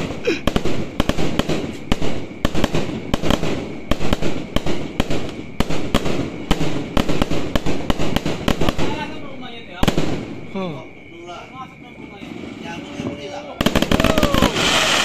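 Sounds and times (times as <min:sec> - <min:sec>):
fireworks bursting: 0:00.0 - 0:15.0.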